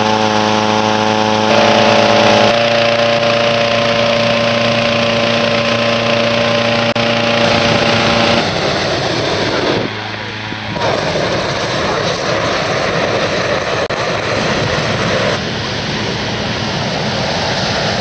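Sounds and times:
petrol engine fan running: 0.0 - 11.7.

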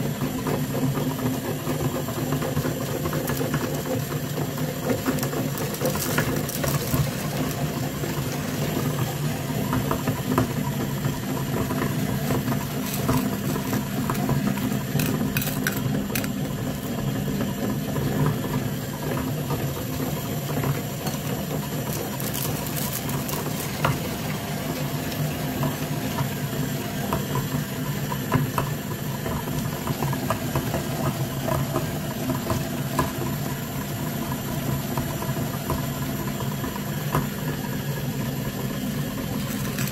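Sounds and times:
meat grinder motor hum: 0.0 - 39.9
candy shells cracking: 5.1 - 7.7, 12.6 - 16.4, 21.8 - 24.1, 39.3 - 39.9.

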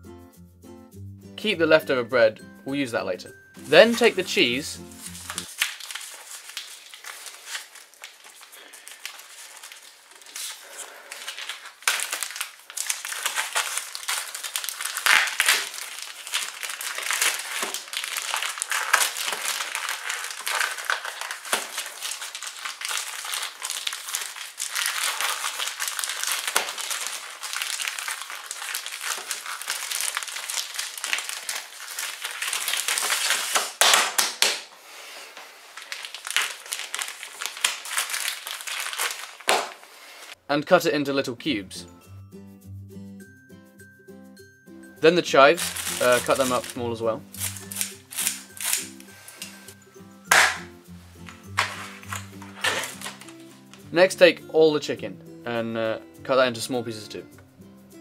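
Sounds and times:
plastic film crinkling: 3.7 - 40.4, 45.5 - 53.9.

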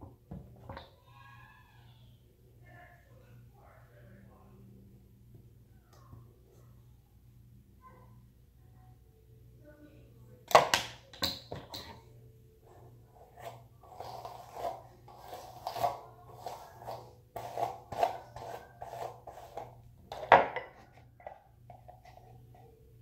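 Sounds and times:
hairbrush scratching through hair: 13.3 - 19.8.

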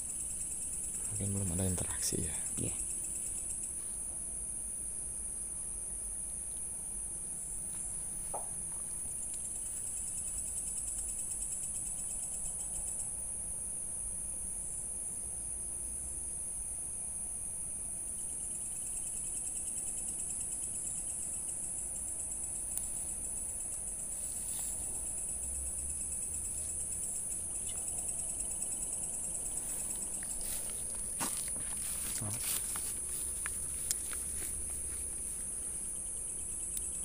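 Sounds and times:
insects chirping: 0.0 - 37.0
pulsed insect trills: 0.0 - 37.0.

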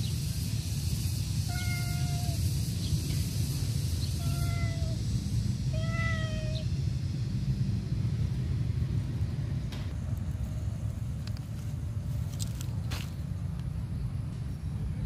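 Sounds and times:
steady low rumble: 0.0 - 15.0
cat meowing: 1.5 - 2.4, 4.2 - 5.0, 5.7 - 6.7.

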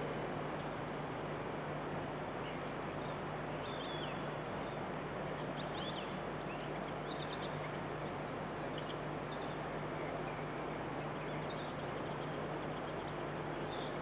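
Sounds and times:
low hum: 0.0 - 14.0
outdoor background hiss: 0.0 - 14.0
faint bird chirps: 2.4 - 4.8, 5.4 - 14.0.

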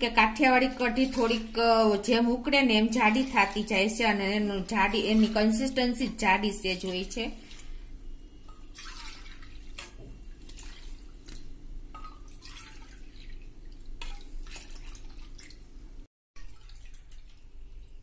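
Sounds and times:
liquid splashing and dripping: 6.7 - 18.0.

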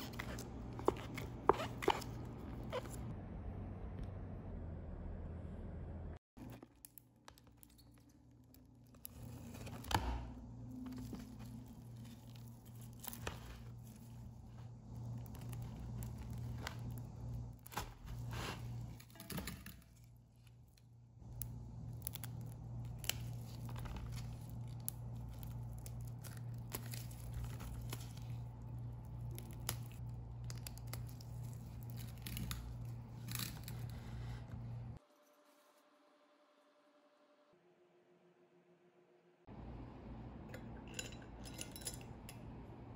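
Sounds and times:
low hum: 2.0 - 6.6
squishy tearing of gel wax: 20.4 - 34.0.

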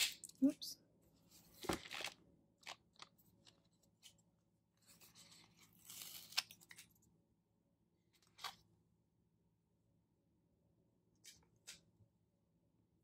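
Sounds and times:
paper rustling: 1.2 - 7.0.

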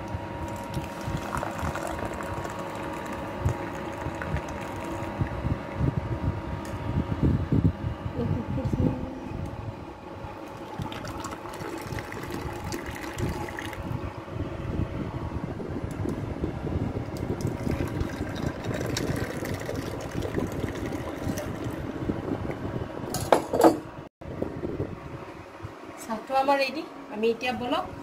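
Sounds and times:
tea pouring into glass cups: 0.5 - 5.2, 10.5 - 13.8, 17.4 - 21.8.

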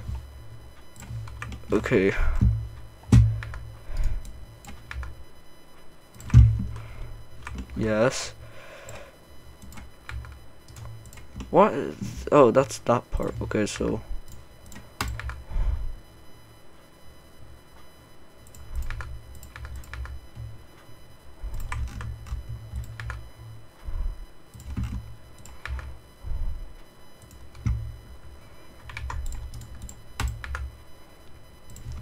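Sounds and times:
keyboard and mouse clicks: 18.4 - 20.5, 21.5 - 23.2, 24.5 - 25.9, 28.8 - 30.7.

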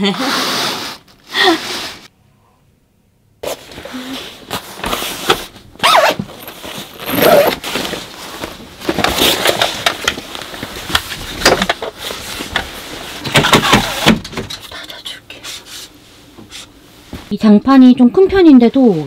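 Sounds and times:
bedding rustling: 3.4 - 14.3.

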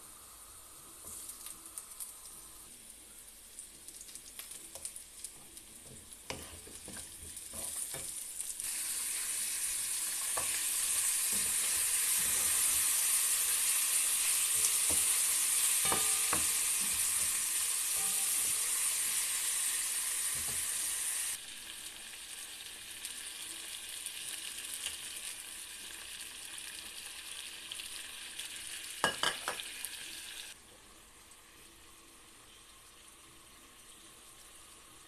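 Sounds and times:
loud steady frying hiss: 0.0 - 35.0
onions sizzling in oil: 0.0 - 35.0
wooden spatula stirring: 5.5 - 8.1.

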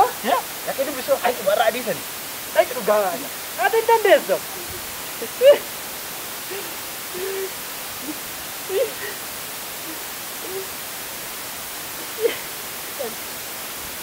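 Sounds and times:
steady background hiss: 0.0 - 14.0
men stifling laughter: 4.5 - 5.8, 6.4 - 10.7, 11.9 - 13.2.

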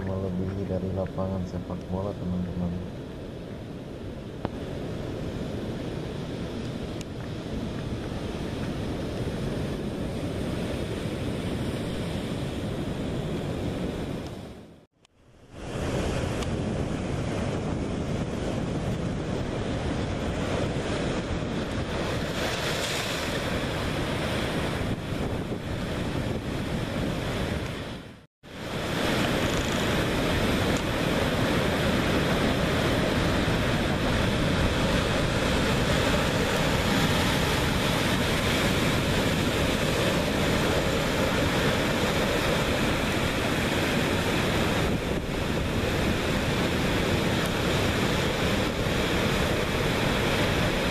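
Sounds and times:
wind buffeting the microphone: 3.0 - 14.8, 15.5 - 50.9
surf breaking over rocks: 15.6 - 50.9.

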